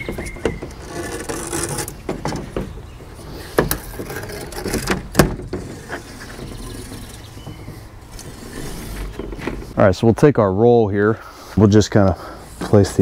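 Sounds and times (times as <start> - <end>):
screen mesh scraping rustle: 0.0 - 9.8.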